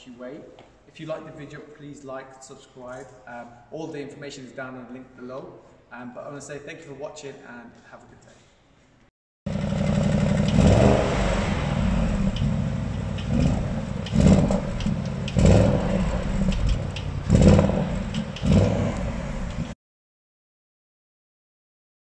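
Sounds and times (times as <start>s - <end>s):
car engine idling with throttle blips: 9.5s - 19.8s.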